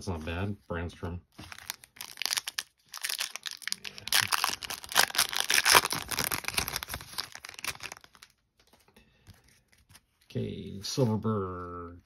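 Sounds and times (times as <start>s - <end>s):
wrapper tearing and crinkling: 1.4s - 8.4s.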